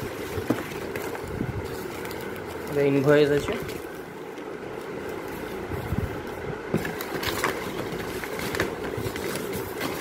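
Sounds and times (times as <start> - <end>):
cardboard box being handled: 0.0 - 2.6, 5.2 - 10.0
paper crinkling: 0.0 - 10.0
steady low hum: 0.0 - 10.0.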